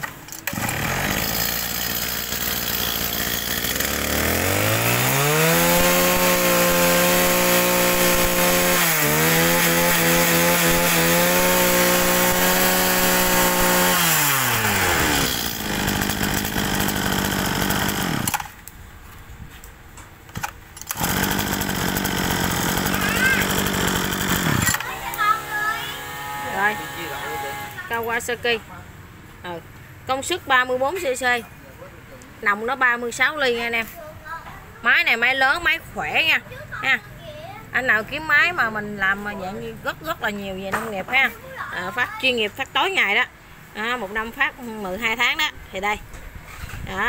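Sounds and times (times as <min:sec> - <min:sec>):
brush cutter engine revving: 0:00.0 - 0:18.6, 0:20.8 - 0:28.0.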